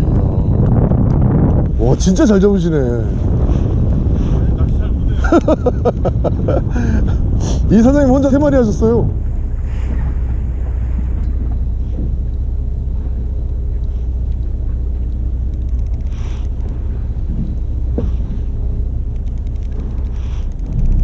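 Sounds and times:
boat engine low rumble: 0.0s - 21.0s
sharp click: 13.8s - 16.8s, 19.1s - 21.0s.

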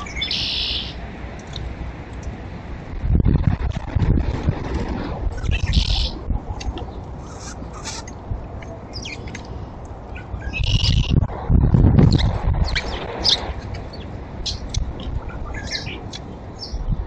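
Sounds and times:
small birds chirping: 0.0s - 1.0s, 5.4s - 11.2s, 12.0s - 16.9s
low rumble: 2.6s - 7.2s, 9.9s - 15.6s.

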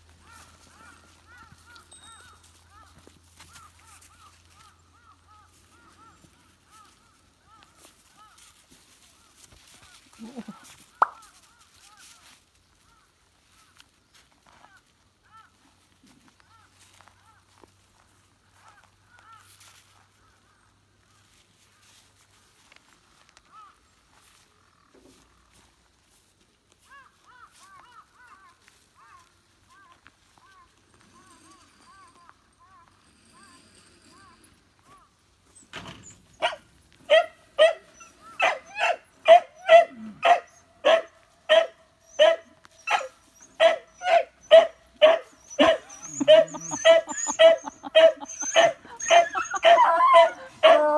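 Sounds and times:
faint crows cawing: 0.1s - 10.1s, 10.7s - 25.7s, 26.8s - 35.3s
puppy yipping: 36.4s - 50.9s.

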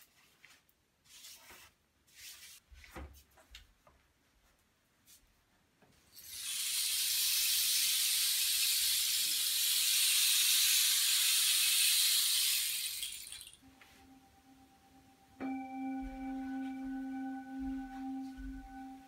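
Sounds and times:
rain stick trickling hiss: 6.1s - 13.6s.

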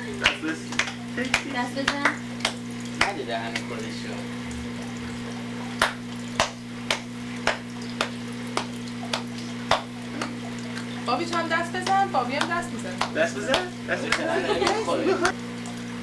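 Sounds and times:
hand claps: 0.0s - 3.9s, 5.8s - 10.4s, 11.2s - 15.4s
low electrical hum: 0.0s - 16.0s.

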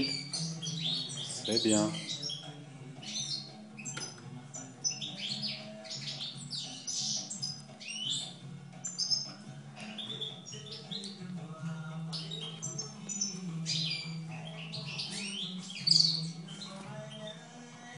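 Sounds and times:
bird chirping and twittering: 0.0s - 17.5s.

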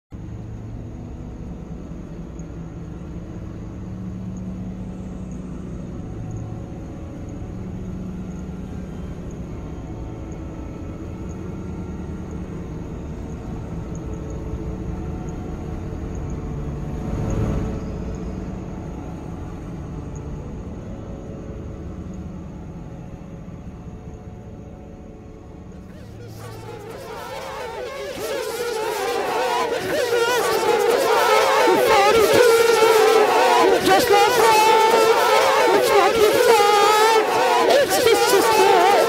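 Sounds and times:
rush of noise: 25.8s - 39.0s.

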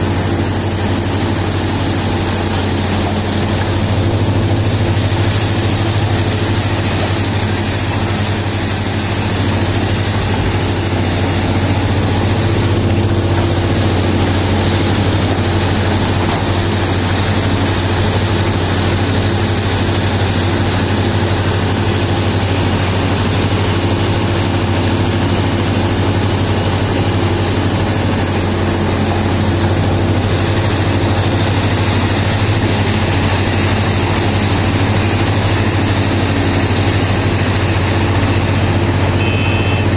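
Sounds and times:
excavator diesel engine drone: 0.0s - 39.9s
thin high whine: 37.0s - 39.9s.

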